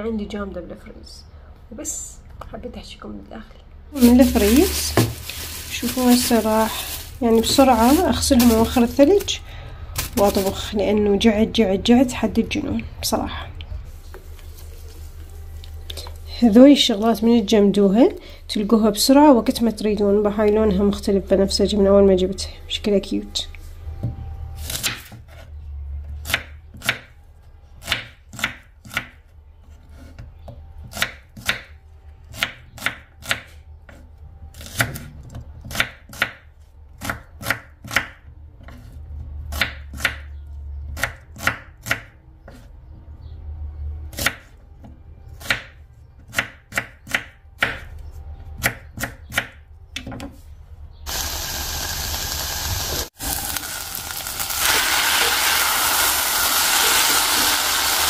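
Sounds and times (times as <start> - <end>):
onion sizzling in hot oil: 51.1 - 58.0.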